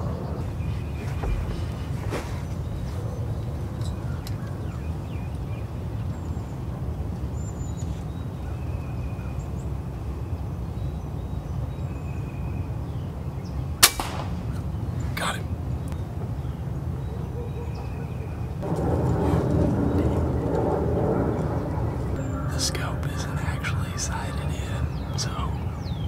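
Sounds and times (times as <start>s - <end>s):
low background rumble: 0.0s - 17.2s, 18.3s - 26.0s
air rifle firing: 13.8s - 14.8s.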